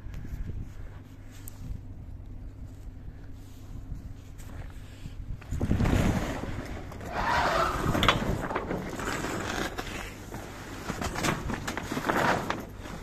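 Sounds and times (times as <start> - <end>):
wind buffeting microphone: 0.0 - 9.2.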